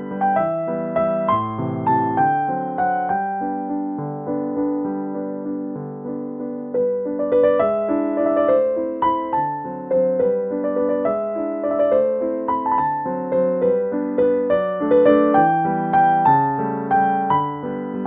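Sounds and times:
calm piano music: 0.0s - 18.0s.

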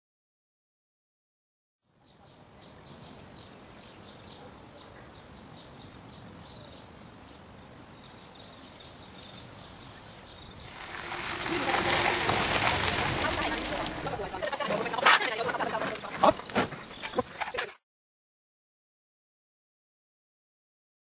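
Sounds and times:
small birds chirping: 1.9s - 12.3s, 15.4s - 17.7s.

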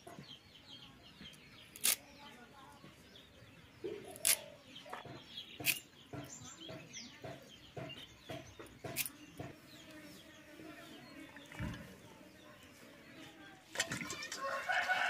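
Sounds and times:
birds chirping: 0.0s - 15.0s
blade cutting vegetables: 8.3s - 9.6s.

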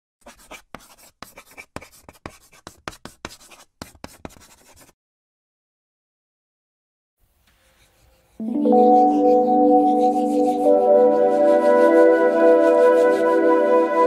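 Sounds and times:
scratchy writing strokes: 0.2s - 5.0s, 7.4s - 13.4s.

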